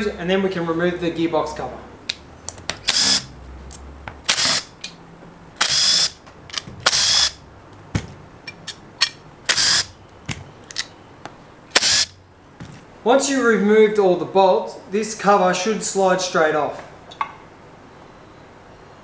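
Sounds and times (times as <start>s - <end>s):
impact driver bursts: 2.8s - 3.3s, 4.2s - 4.7s, 5.6s - 6.2s, 6.8s - 7.4s, 9.5s - 10.0s, 11.7s - 12.1s.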